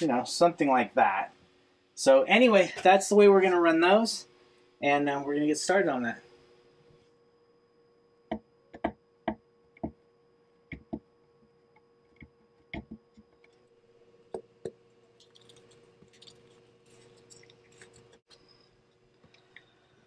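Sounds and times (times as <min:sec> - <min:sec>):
tape crackling rustle: 0:15.2 - 0:18.5.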